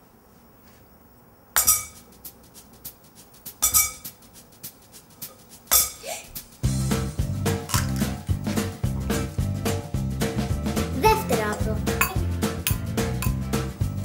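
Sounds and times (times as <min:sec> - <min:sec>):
egg clinking on glass bowl: 0:01.6 - 0:02.1, 0:03.6 - 0:04.2.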